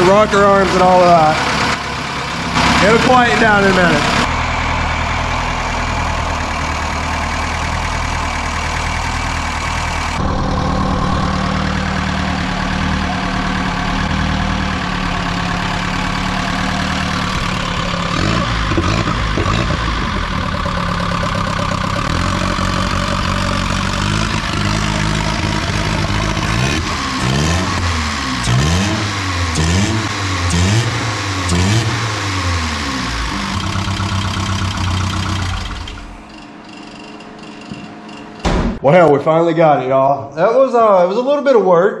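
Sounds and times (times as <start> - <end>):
engine idling: 0.0 - 38.8.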